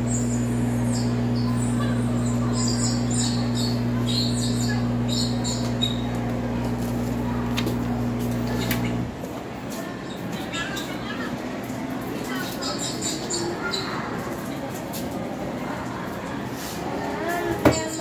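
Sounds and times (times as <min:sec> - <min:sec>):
birds chirping: 0:00.0 - 0:09.1, 0:12.4 - 0:14.2
steady low hum: 0:00.0 - 0:09.2.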